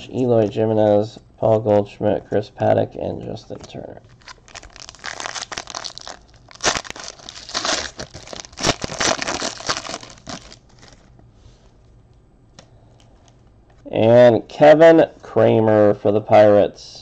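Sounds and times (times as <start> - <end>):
foil wrapper tearing and crinkling: 4.1 - 11.1.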